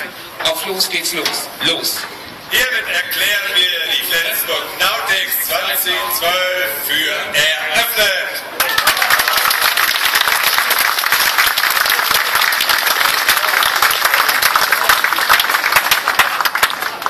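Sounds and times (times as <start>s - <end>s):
crowd applauding: 8.6s - 17.0s.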